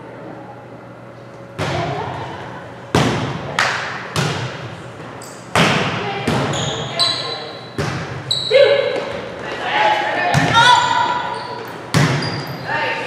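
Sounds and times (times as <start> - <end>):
volleyball hits echoing: 1.5 - 4.8, 5.5 - 6.8, 7.6 - 9.6, 10.2 - 11.3, 11.9 - 12.5.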